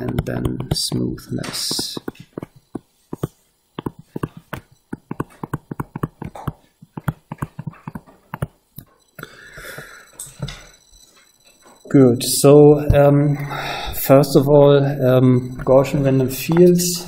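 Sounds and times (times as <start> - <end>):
stylus tapping on screen: 0.0 - 10.7, 15.4 - 17.0.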